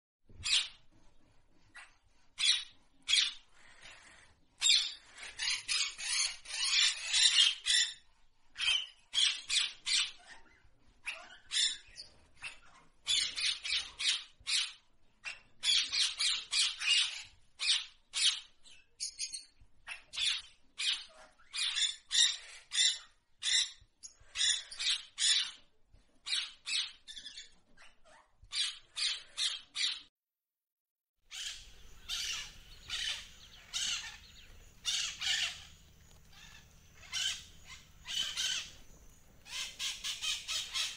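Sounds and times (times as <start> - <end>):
budgerigars chattering: 2.4 - 8.0, 31.3 - 40.9
faint low hum: 31.3 - 40.9.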